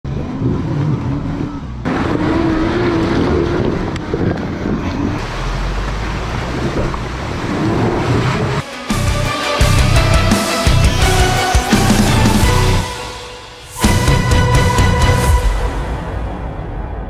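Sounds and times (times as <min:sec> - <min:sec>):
wind noise on microphone: 0:02.0 - 0:05.3.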